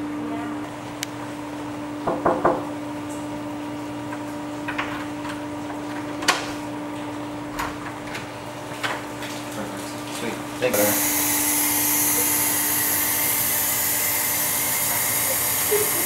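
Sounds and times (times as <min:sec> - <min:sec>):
steady low hum: 0:10.3 - 0:16.0.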